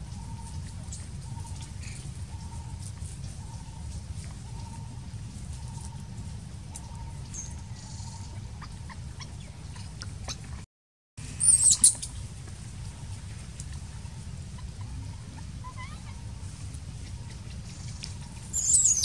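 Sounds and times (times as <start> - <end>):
baby monkey squealing: 11.4 - 12.1, 14.6 - 16.3, 18.5 - 19.0.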